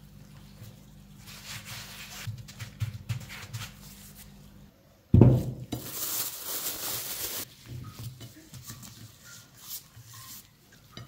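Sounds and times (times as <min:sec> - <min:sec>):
plastic wrap rustling: 0:05.3 - 0:10.5.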